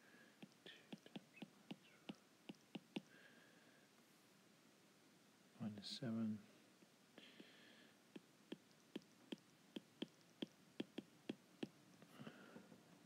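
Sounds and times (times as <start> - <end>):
stylus tapping on glass screen: 0.4 - 3.1, 8.2 - 11.8.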